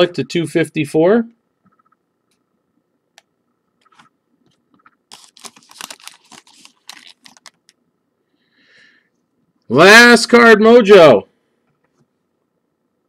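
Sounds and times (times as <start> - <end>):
wrapper rustling and crackling: 5.1 - 7.8.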